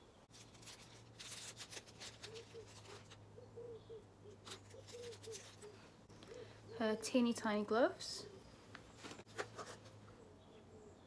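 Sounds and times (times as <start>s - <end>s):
packaging rustling and crinkling: 0.3s - 3.2s.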